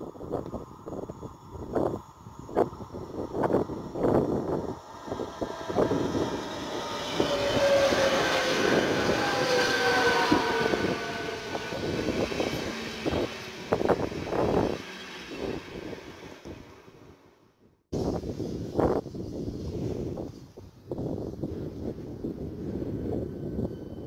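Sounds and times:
wind buffeting microphone: 0.0s - 17.3s, 17.9s - 24.0s
electric train traction whine: 0.0s - 17.4s
wheels rumbling on rails: 0.1s - 17.4s.

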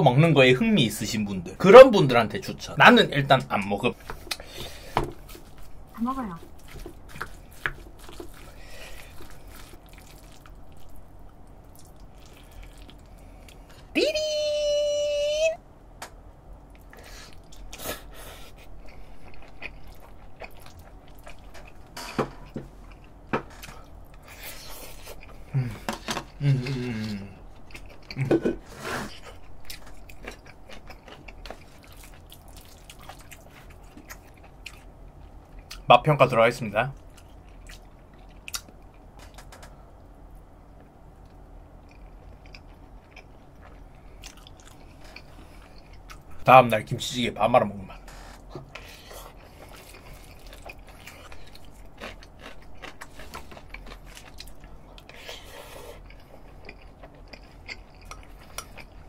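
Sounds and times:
man chewing food: 3.9s - 13.9s, 16.5s - 35.9s, 37.0s - 46.4s, 47.9s - 59.0s
wet squelches of stirred rice: 6.4s - 10.9s.

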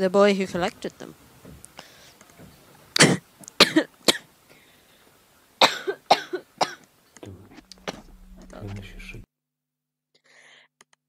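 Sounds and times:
woman coughing: 3.0s - 4.3s, 5.6s - 6.8s.

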